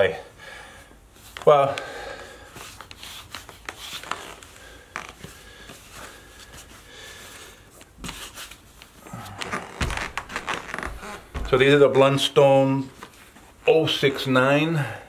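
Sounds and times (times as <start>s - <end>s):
hands rustling fabric and leather: 2.4s - 12.0s, 12.8s - 13.6s
soft thump: 9.8s - 11.7s.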